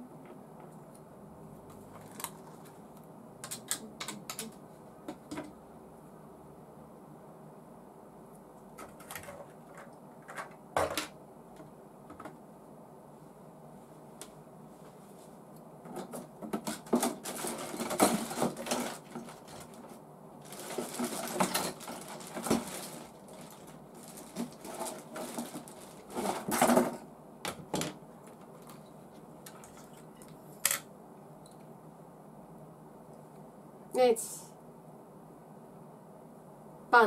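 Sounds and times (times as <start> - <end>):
plastic parts clicking and clattering: 3.4 - 4.6, 8.8 - 11.2, 15.9 - 28.8.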